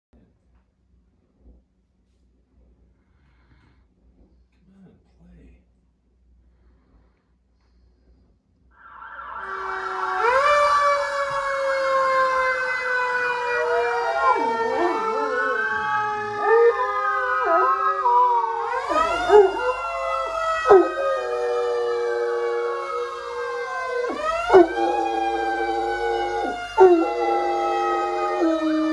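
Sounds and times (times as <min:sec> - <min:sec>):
dog howling: 0:08.8 - 0:28.9
fire engine sirens wailing: 0:08.8 - 0:28.9.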